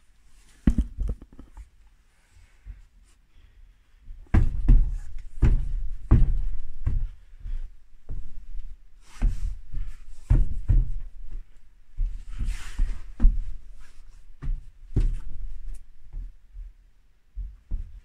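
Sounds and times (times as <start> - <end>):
heavy thuds and knocks: 0.6 - 1.6, 4.2 - 8.3, 17.4 - 18.0.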